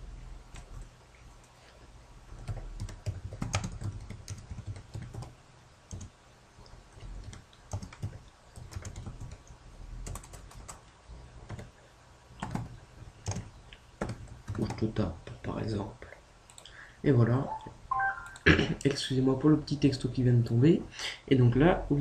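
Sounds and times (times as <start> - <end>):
typing on computer keyboard: 2.3 - 6.1, 7.2 - 10.8, 11.4 - 11.7, 12.4 - 14.9.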